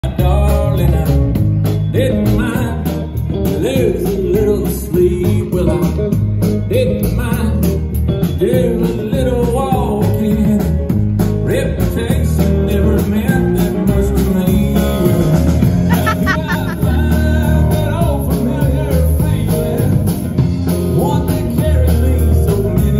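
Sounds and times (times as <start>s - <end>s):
guitars: 0.0s - 22.9s
live band playing: 0.0s - 22.9s
drum kit beat: 0.1s - 22.9s
person singing: 11.5s - 20.2s.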